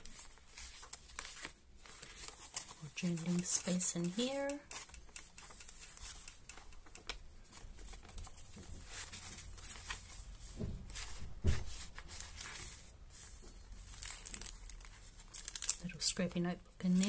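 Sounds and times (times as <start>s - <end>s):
paper rustling and crinkling: 0.0s - 6.2s, 7.0s - 15.9s
soft thumps: 10.5s - 11.8s.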